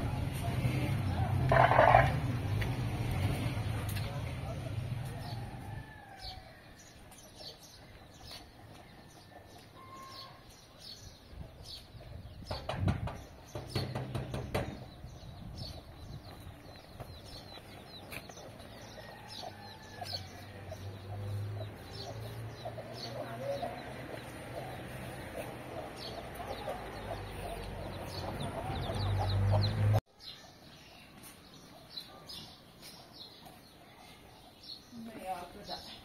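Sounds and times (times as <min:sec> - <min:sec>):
small birds chirping: 0:00.0 - 0:36.0
chickens clucking: 0:01.1 - 0:02.7, 0:15.2 - 0:30.0.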